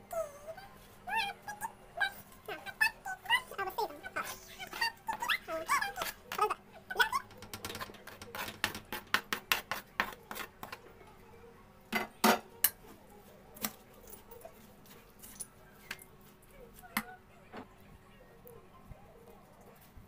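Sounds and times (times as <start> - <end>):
spoon knocking in bowl: 7.2 - 10.8.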